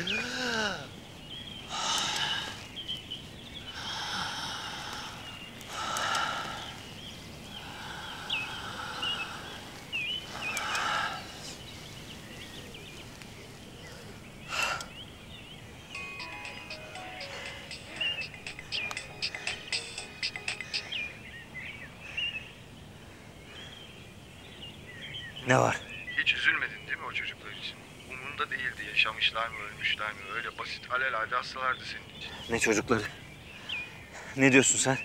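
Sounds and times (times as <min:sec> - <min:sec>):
small birds chirping: 0:00.0 - 0:35.0
man breathing heavily: 0:03.7 - 0:11.6, 0:17.2 - 0:19.8.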